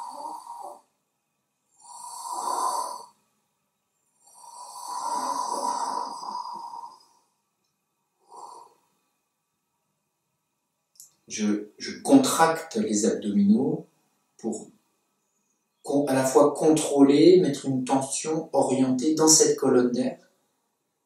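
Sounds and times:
man breathing slowly: 0.0s - 0.9s, 4.2s - 7.4s.

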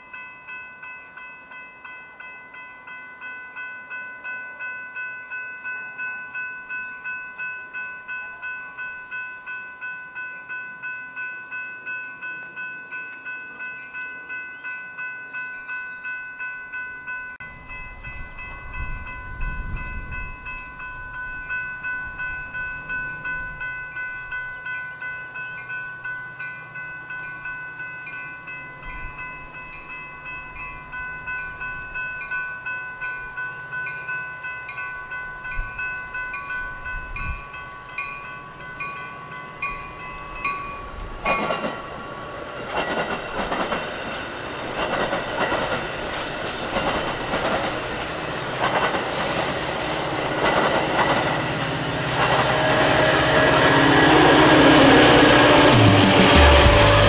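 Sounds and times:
train wheels clattering: 40.5s - 57.0s.

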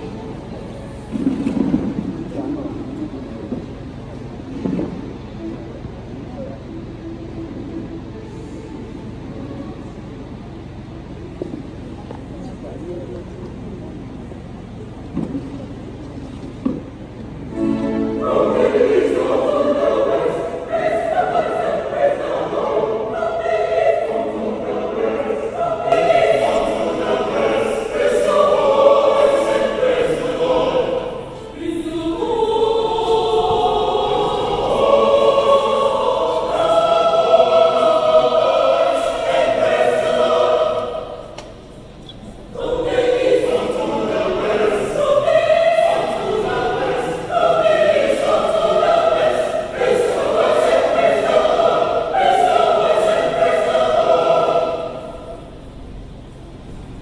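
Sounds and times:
choir singing: 0.0s - 3.4s, 17.4s - 57.0s.

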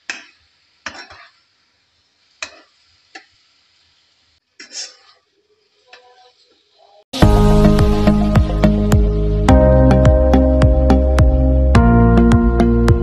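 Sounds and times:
spatula scraping a wok: 0.1s - 1.5s, 2.4s - 2.9s, 4.6s - 5.3s.

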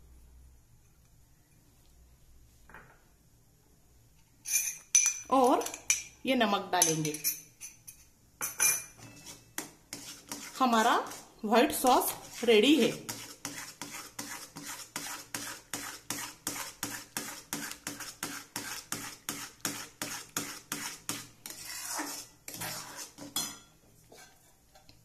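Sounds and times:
spoon scraping a metal pan: 6.8s - 24.9s.

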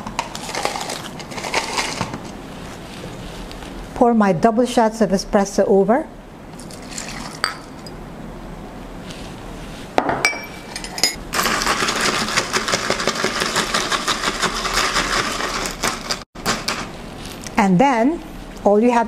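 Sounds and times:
ice cubes rattling in plastic cup: 0.3s - 2.2s, 11.4s - 16.8s
glass clinks: 7.4s - 8.0s, 10.1s - 11.2s.

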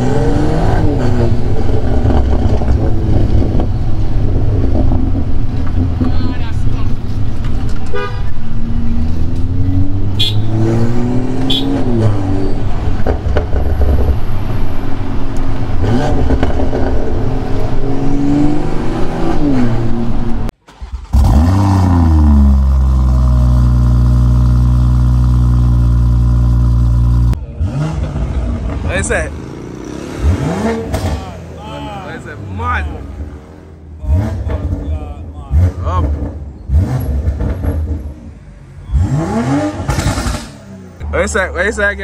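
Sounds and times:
car exhaust revving and idling: 0.0s - 42.0s.

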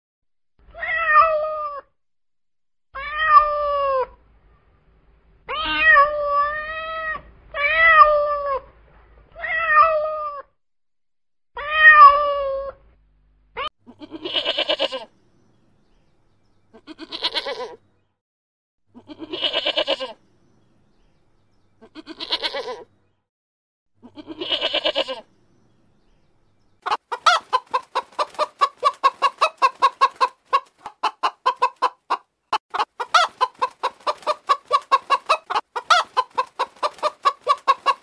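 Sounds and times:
cat meowing: 0.7s - 1.9s, 3.0s - 4.1s, 5.5s - 8.7s, 9.3s - 10.5s, 11.6s - 12.8s
goat bleating: 13.9s - 15.1s, 16.7s - 17.8s, 19.0s - 20.2s, 21.8s - 22.9s, 24.0s - 25.3s.

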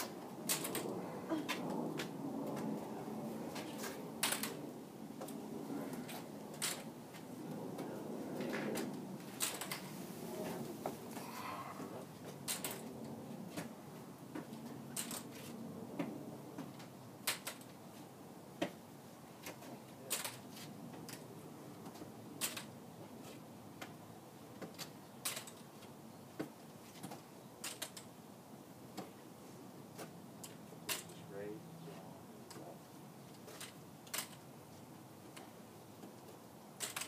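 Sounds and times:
walker legs tapping on concrete: 21.8s - 28.1s, 30.0s - 31.3s, 32.4s - 34.5s, 35.2s - 37.0s.

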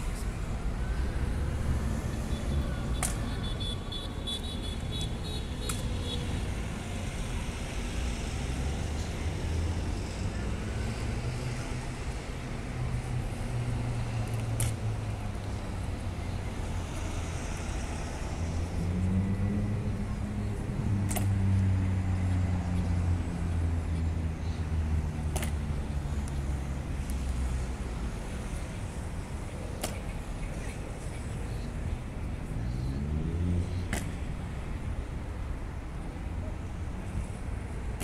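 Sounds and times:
road traffic: 0.0s - 38.0s
vehicle engine passing: 17.2s - 23.8s.

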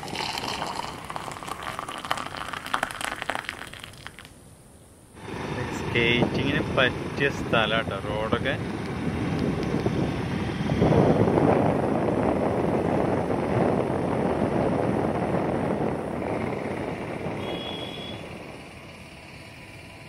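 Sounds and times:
wind noise on microphone: 5.2s - 18.9s
moving vehicle: 5.2s - 20.0s.

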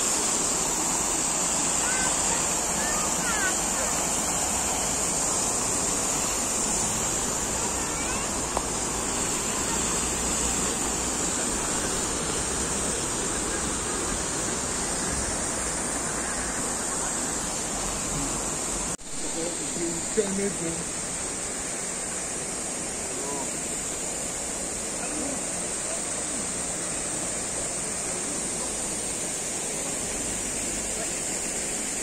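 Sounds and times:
fountain splashing into basin: 0.0s - 32.0s.

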